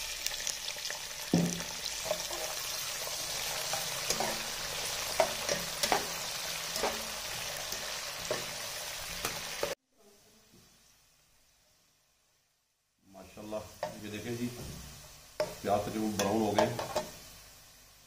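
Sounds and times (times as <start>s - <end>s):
onions sizzling in hot oil: 0.0s - 9.8s, 10.5s - 18.0s
metal spatula scraping a pot: 2.0s - 8.5s.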